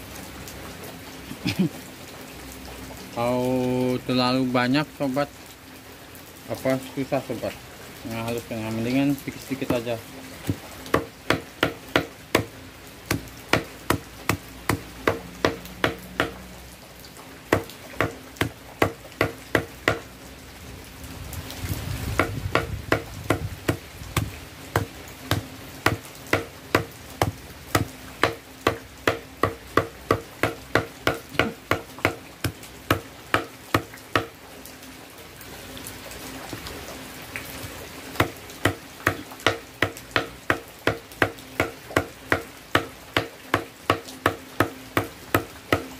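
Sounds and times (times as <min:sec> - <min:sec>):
machete chopping on chopping block: 0:10.5 - 0:12.5, 0:13.1 - 0:16.4, 0:17.5 - 0:20.0, 0:22.2 - 0:34.3, 0:38.2 - 0:45.9.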